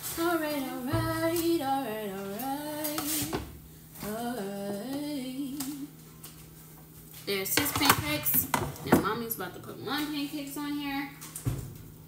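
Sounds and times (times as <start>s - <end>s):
woman singing wordless tune: 0.0s - 6.0s.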